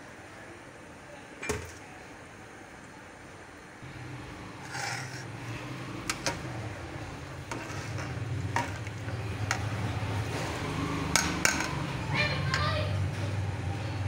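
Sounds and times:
spoon stirring in a pot: 0:04.6 - 0:05.3, 0:07.4 - 0:09.8.

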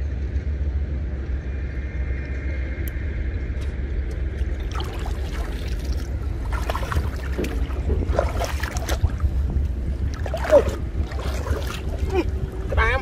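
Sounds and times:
wind rumble on microphone: 0:00.0 - 0:13.0
water sloshing and splashing: 0:04.3 - 0:13.0.

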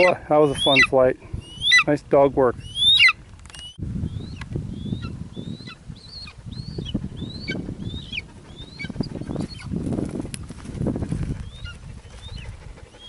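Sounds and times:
eagle yelping calls: 0:00.0 - 0:01.9, 0:02.6 - 0:09.7.

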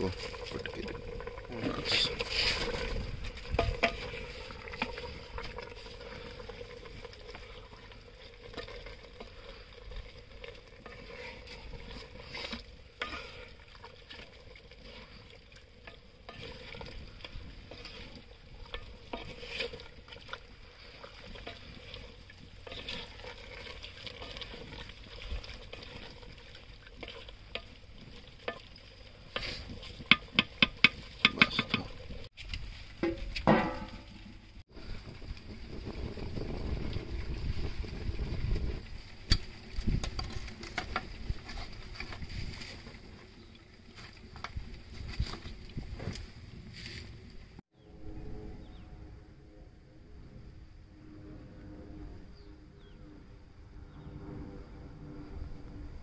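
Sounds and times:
stirring scraping clicks: 0:01.9 - 0:32.7.

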